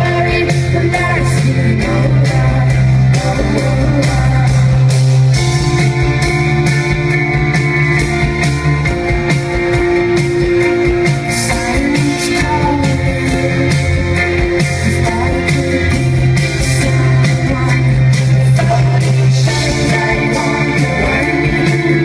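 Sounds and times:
woman singing: 0.0s - 4.8s, 11.3s - 14.0s, 14.8s - 22.0s
keyboard chords: 0.0s - 22.0s
steady drum beat: 0.0s - 22.0s.

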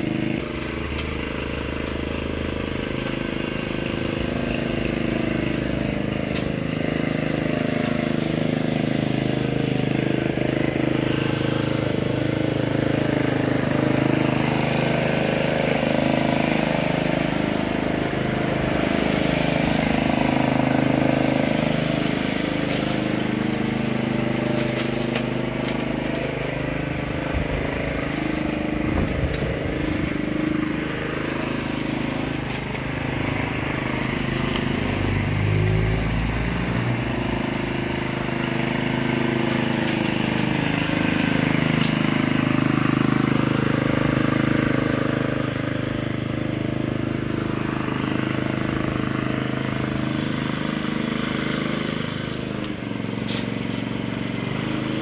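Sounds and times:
lawn mower engine running: 0.0s - 55.0s.

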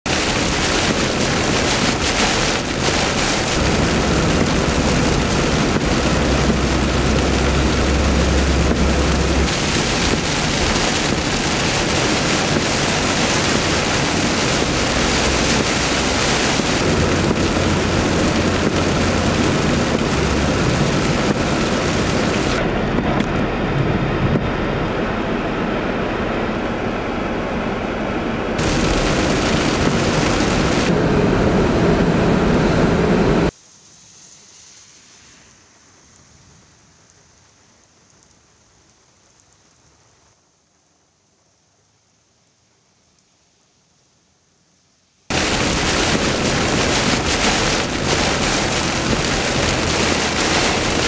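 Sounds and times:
heavy rain on car roof: 0.0s - 26.6s, 28.6s - 33.6s, 45.3s - 51.0s
low thunder rumbling: 0.1s - 25.9s, 28.6s - 33.5s, 45.3s - 51.0s.

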